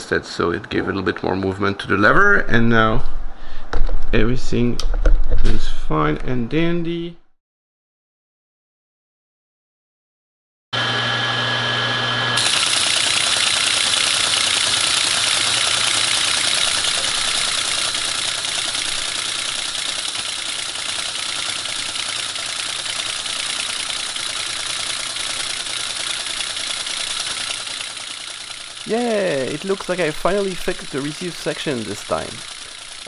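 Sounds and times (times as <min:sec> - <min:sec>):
steady hum: 0:12.4 - 0:33.0
teletype printer clatter: 0:12.4 - 0:33.0.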